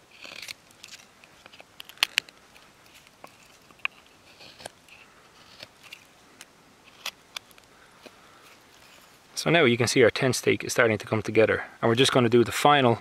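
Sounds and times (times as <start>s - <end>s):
knife scraping wood: 0.0s - 6.1s
knife carving wood snaps: 0.2s - 4.8s.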